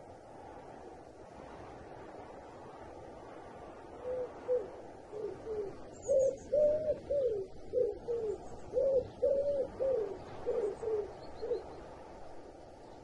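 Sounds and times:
owl hooting: 0:04.0 - 0:11.7.

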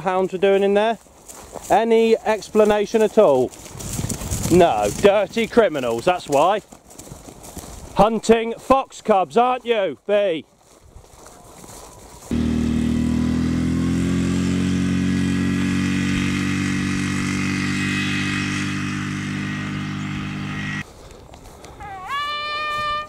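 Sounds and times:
quad bike engine running: 0:12.3 - 0:20.8
short high-pitched call: 0:22.0 - 0:23.0.

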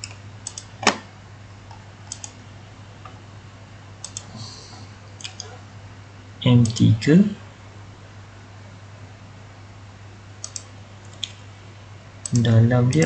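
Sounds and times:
computer mouse clicking: 0:00.0 - 0:00.7, 0:02.1 - 0:02.4, 0:04.0 - 0:04.3, 0:05.2 - 0:05.6, 0:10.4 - 0:11.4
low electrical hum: 0:00.0 - 0:13.0.

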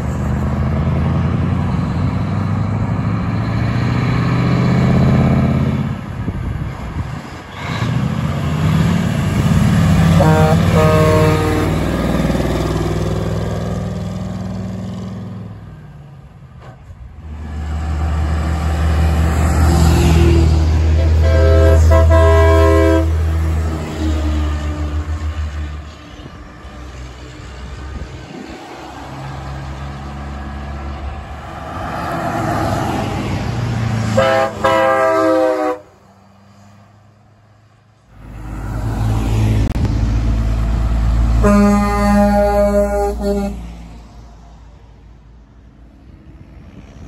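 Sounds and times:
diesel engine rumble: 0:00.0 - 0:47.0
truck air horn blasts: 0:10.0 - 0:12.0, 0:20.1 - 0:23.3, 0:34.1 - 0:36.0, 0:41.4 - 0:43.8.

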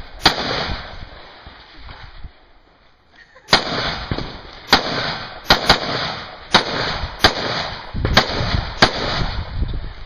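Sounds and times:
rifle shots with echo: 0:00.0 - 0:01.4, 0:03.5 - 0:09.6.

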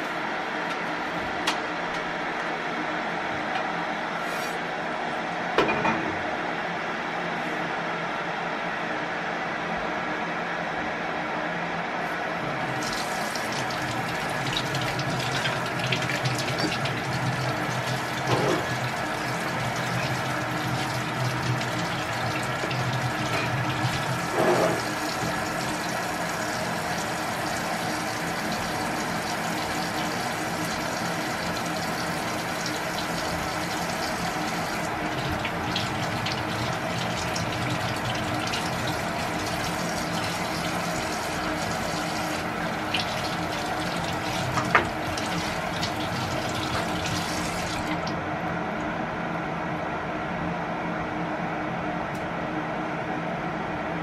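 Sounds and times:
electric kettle heating water: 0:12.4 - 0:49.0
tap running into sink: 0:12.8 - 0:18.9, 0:22.6 - 0:25.3, 0:42.0 - 0:48.0.

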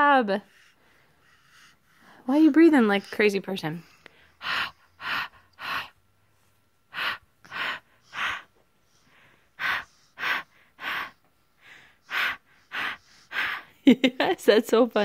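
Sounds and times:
baby breathing heavily: 0:00.4 - 0:06.1, 0:06.9 - 0:13.8.

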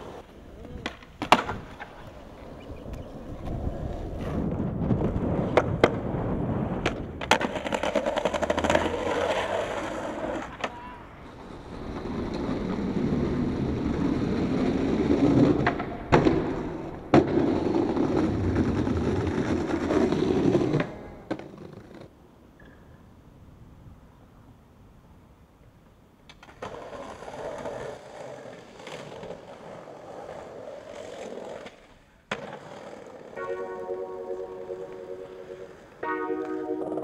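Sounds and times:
skateboard wheels rolling on paving: 0:00.0 - 0:22.2, 0:25.6 - 0:37.0
skateboard popping and landing clacks: 0:00.1 - 0:06.1, 0:06.8 - 0:10.8, 0:15.2 - 0:22.7, 0:26.2 - 0:33.4.

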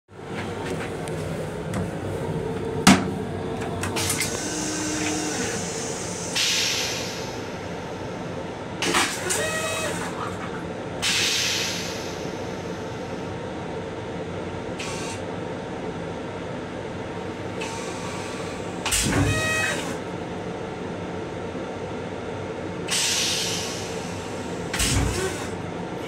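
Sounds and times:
train running rumble: 0:00.1 - 0:14.9
toilet bowl clunk: 0:02.8 - 0:03.1
toilet flush hiss: 0:04.0 - 0:07.5, 0:11.0 - 0:12.6, 0:22.9 - 0:25.5.

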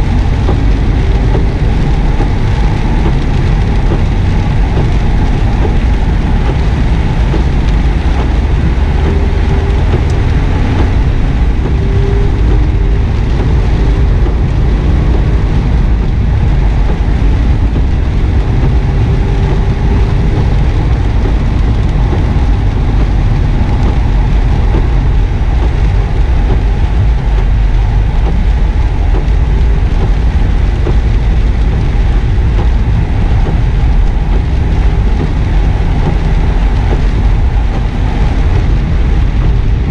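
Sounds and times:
car engine pulling: 0:00.0 - 0:39.9
tyre noise on wet road: 0:00.0 - 0:39.9.

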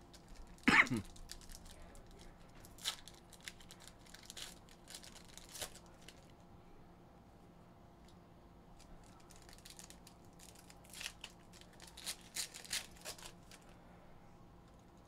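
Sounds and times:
foil wrapper crinkling and tearing: 0:00.1 - 0:06.4, 0:08.8 - 0:13.8.

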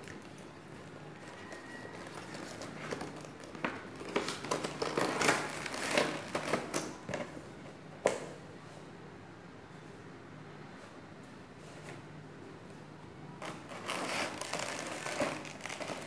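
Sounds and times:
cardboard and plastic crinkling: 0:00.0 - 0:07.4, 0:13.4 - 0:16.0.

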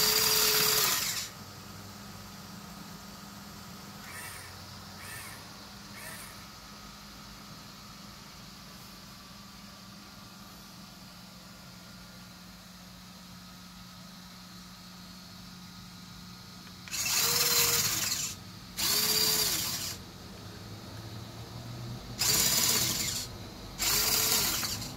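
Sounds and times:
electric motors whining: 0:00.0 - 0:01.3, 0:04.0 - 0:06.5, 0:16.8 - 0:20.0, 0:22.2 - 0:24.9
faint steady hum: 0:00.0 - 0:24.9.

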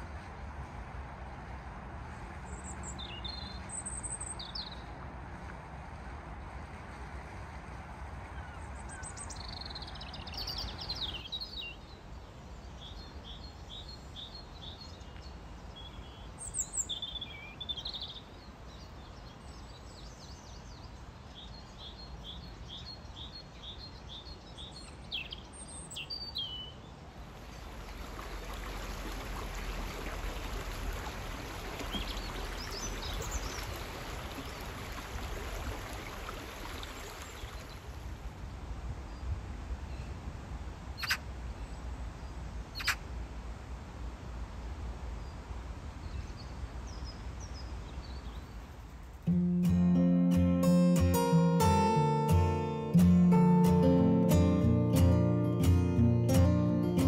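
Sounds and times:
birds chirping: 0:02.4 - 0:05.0, 0:41.0 - 0:41.2, 0:42.7 - 0:43.0, 0:49.2 - 0:57.0
stream running over rocks: 0:26.8 - 0:38.9.

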